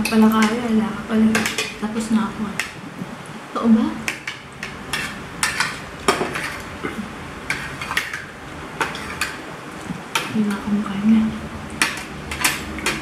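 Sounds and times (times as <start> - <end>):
cutlery clinking on plates: 4.1 - 9.4, 11.8 - 13.0.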